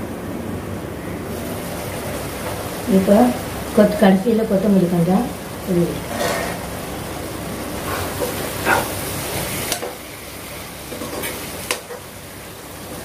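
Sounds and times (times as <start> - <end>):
steady sizzle: 0.0 - 13.0
spatula scraping a pan: 6.1 - 6.6.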